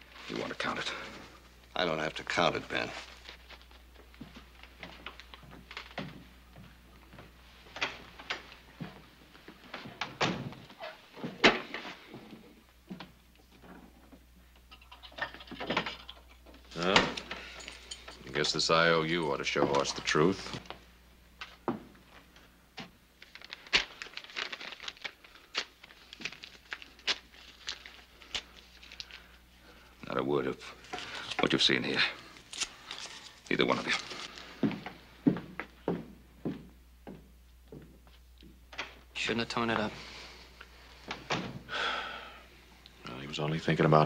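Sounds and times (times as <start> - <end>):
low steady hum: 0.0 - 44.0
paper crinkling: 2.6 - 6.0, 23.2 - 29.4, 30.7 - 34.6.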